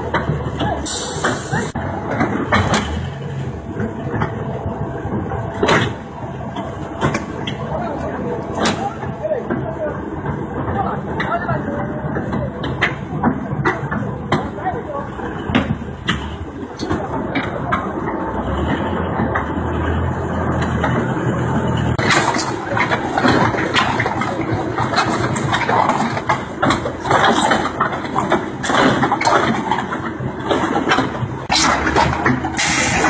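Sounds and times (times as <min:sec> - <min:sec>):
concrete mixer pump running: 0:00.0 - 0:33.0.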